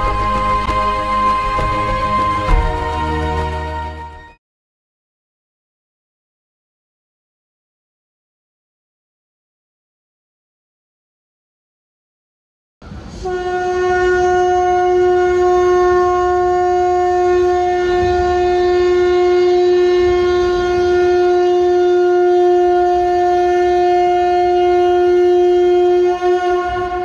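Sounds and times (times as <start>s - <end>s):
conch shell blown: 0.0s - 4.2s, 13.2s - 27.0s.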